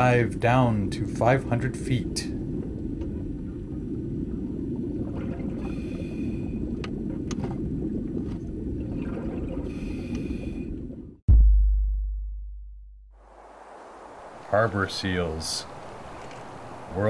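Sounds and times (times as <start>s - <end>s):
underwater rumble of moving water: 0.0s - 11.2s.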